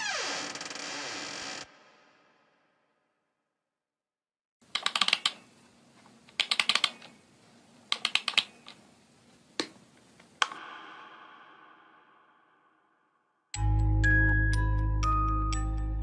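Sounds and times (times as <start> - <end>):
keyboard typing clicks: 4.7 - 5.4, 6.3 - 7.2, 7.9 - 8.8.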